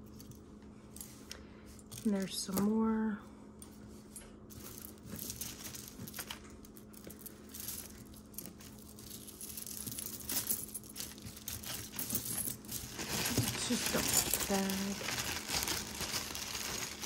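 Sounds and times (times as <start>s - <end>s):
beads and chains clicking: 4.6s - 17.0s.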